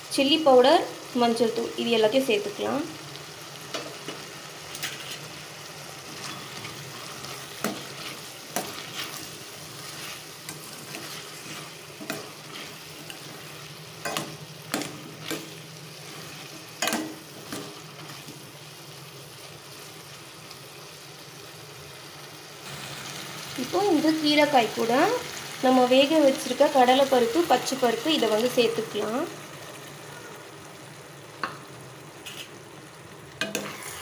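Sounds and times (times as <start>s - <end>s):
vegetables sizzling in a pan: 0.0s - 34.0s
metal spoon scraping a pan: 3.7s - 5.4s, 6.1s - 18.3s, 32.2s - 32.6s, 33.4s - 34.0s.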